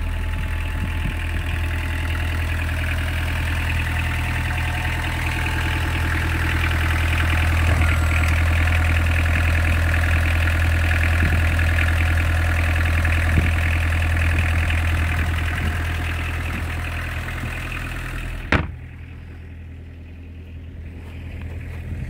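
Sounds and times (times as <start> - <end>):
diesel engine idling: 0.0 - 22.0
hatch shutting thump: 18.4 - 19.0.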